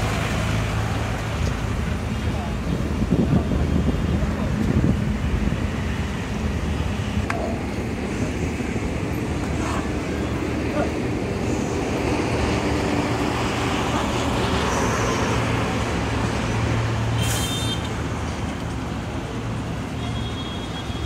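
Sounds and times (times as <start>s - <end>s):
road traffic: 0.0s - 21.0s
short hiss: 17.2s - 17.8s.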